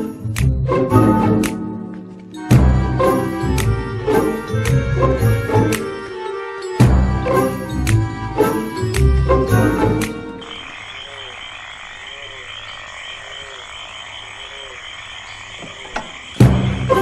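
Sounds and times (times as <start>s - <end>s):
background music: 0.0s - 10.8s, 16.4s - 17.0s
frogs croaking: 0.0s - 17.0s
high-pitched chirring: 2.8s - 17.0s.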